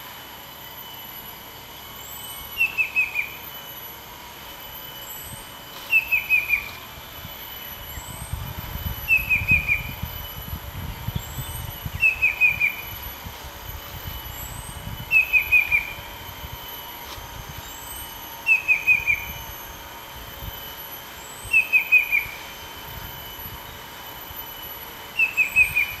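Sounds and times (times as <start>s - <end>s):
cuckoo whistled song: 2.4s - 3.7s, 4.9s - 13.1s, 14.0s - 16.2s, 17.6s - 19.6s, 21.2s - 22.6s, 24.6s - 26.0s.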